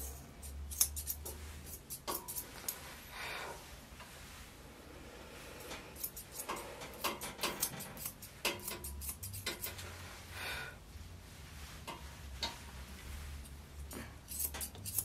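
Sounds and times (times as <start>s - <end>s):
shears snipping: 0.4s - 2.8s.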